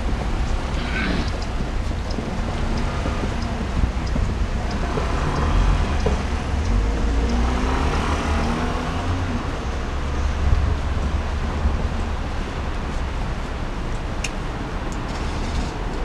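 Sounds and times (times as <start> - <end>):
distant road traffic rumble: 0.0 - 16.0.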